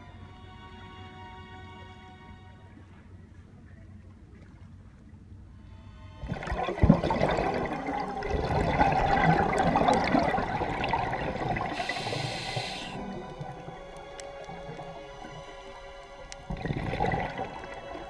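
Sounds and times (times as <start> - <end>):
background music: 0.0 - 3.3, 5.5 - 18.0
water rushing underwater: 6.2 - 18.0.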